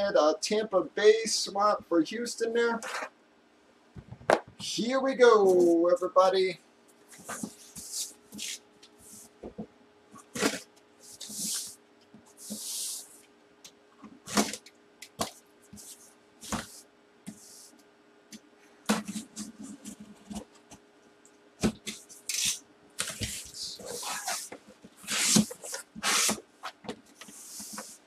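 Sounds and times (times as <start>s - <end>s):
faint steady hum: 0.0s - 28.0s
cardboard scraping hisses: 7.1s - 9.4s, 10.2s - 13.2s, 15.2s - 17.8s, 21.9s - 28.0s.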